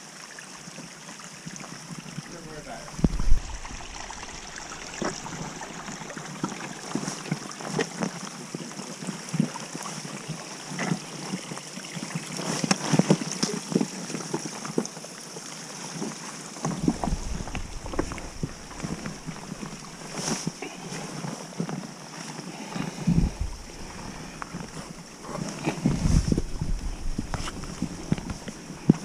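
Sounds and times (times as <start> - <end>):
running water: 0.0 - 29.0
wind: 0.0 - 29.0
boots scuffing on wet rock: 16.8 - 21.1.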